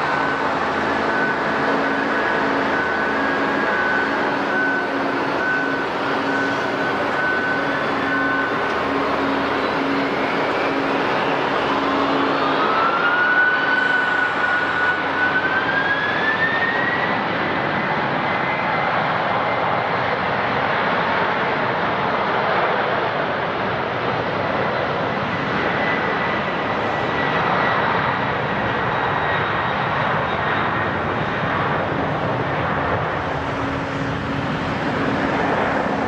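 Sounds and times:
beeping tone: 0.0s - 12.5s
turbine whine rising: 0.0s - 17.5s, 30.3s - 36.0s
jet engines roaring: 0.0s - 36.0s.

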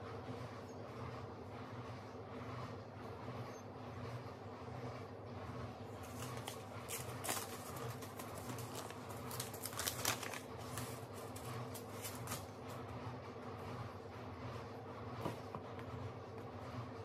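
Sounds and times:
steady low hum: 0.0s - 17.0s
clicks and rustles of seeds: 6.0s - 12.6s.

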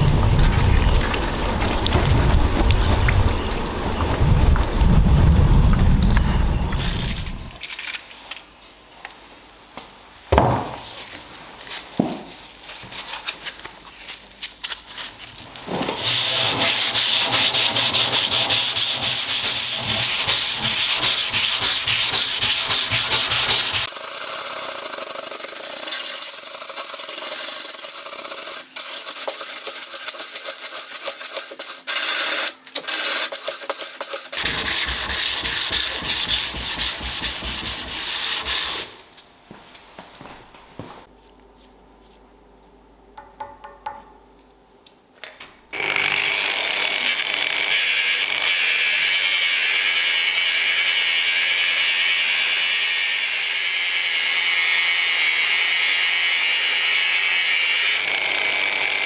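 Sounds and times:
sanding a metal blade: 16.0s - 38.9s.

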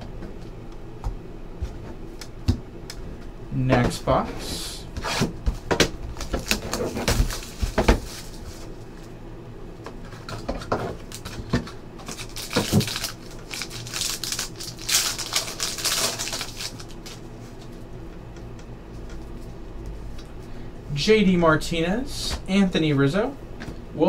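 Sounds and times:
foil pack crinkling and tearing: 6.1s - 8.8s, 11.0s - 17.3s.

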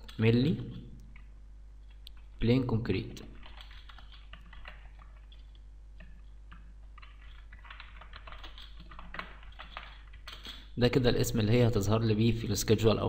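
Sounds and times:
typing on computer keyboard: 3.2s - 10.7s.

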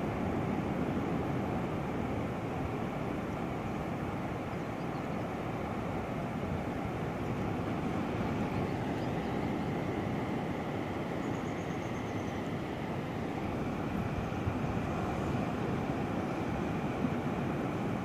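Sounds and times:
surf rumbling at shoreline: 0.0s - 18.0s.

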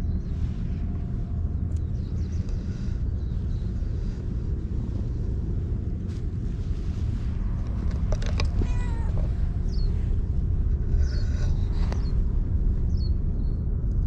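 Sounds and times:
steady low rumble: 0.0s - 14.0s
cat meowing: 8.4s - 9.4s.

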